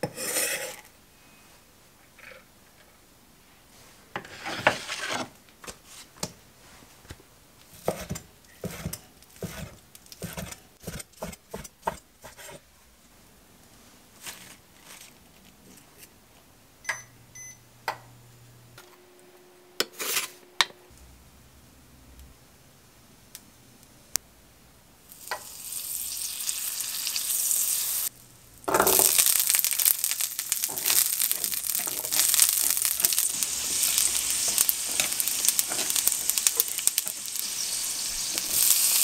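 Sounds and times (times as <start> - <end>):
vegetables scraped across cutting board: 0.0 - 0.9, 4.2 - 5.3, 7.8 - 12.6, 19.8 - 20.5
cooktop short beeps: 16.8 - 17.6.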